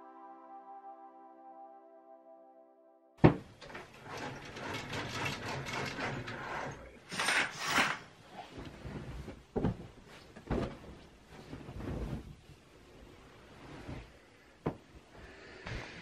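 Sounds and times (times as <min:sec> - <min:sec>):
curtain rings scraping on rod: 0:03.6 - 0:08.1
window blind ratcheting clicks: 0:03.6 - 0:08.1
pillow thumps: 0:08.5 - 0:12.5.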